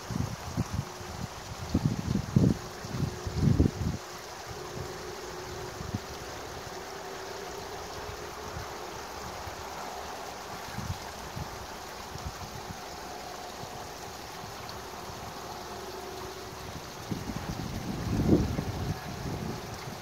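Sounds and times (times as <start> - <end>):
wind buffeting the microphone: 0.0 - 6.2, 16.5 - 20.0
outdoor rushing hiss: 0.0 - 20.0.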